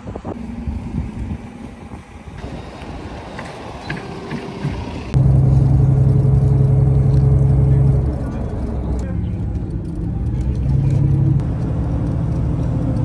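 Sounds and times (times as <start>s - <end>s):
wind on microphone: 0.0s - 4.0s
loud low vehicle hum: 0.0s - 13.0s
low vehicle rumble: 0.0s - 13.0s.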